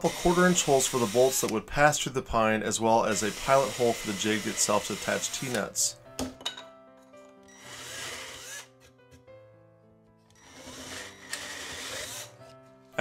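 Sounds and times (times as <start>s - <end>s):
power drill boring through wood: 0.0s - 1.6s, 3.0s - 5.8s, 7.5s - 8.9s, 10.3s - 12.4s
background music with held notes: 1.4s - 13.0s.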